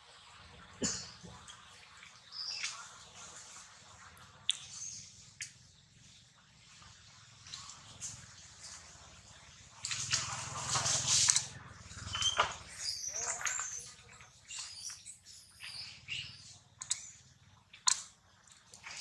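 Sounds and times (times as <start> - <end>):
scattered clicks: 16.8 - 18.9.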